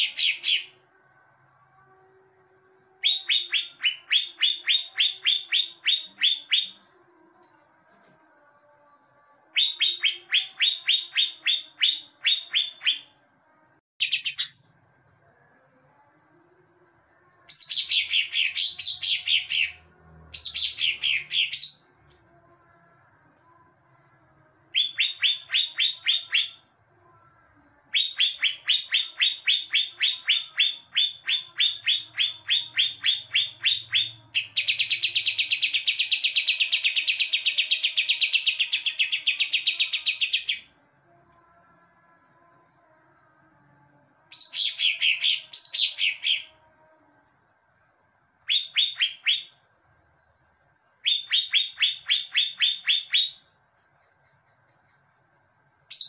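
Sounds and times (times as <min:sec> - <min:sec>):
bird singing rapid high chips: 0:48.4 - 0:49.5.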